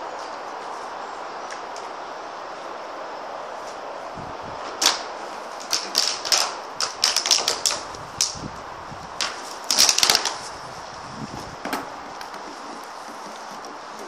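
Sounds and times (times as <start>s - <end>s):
plastic bottle crackling: 4.8s - 8.4s, 9.2s - 10.6s.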